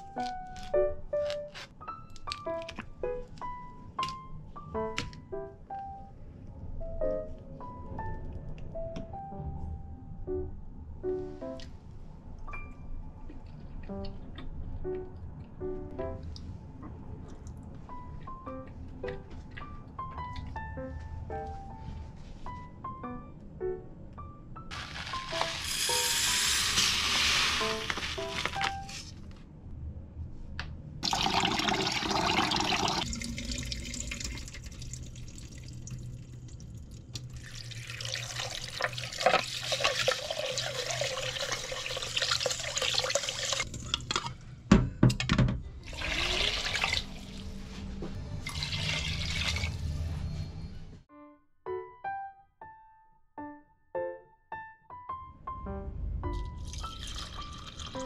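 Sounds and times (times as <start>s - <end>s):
piano notes: 0.0s - 29.1s, 49.7s - 58.0s
light background music: 0.0s - 29.3s, 46.0s - 58.0s
running tap water: 24.7s - 28.6s, 31.0s - 43.8s, 45.9s - 47.2s, 48.5s - 49.7s
rice being swished and rinsed: 24.7s - 29.2s.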